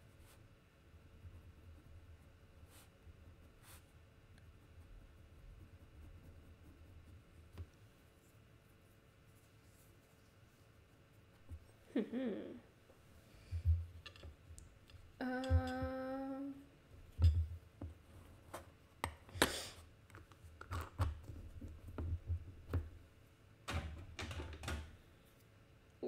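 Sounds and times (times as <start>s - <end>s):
woman humming a note: 15.2s - 16.6s.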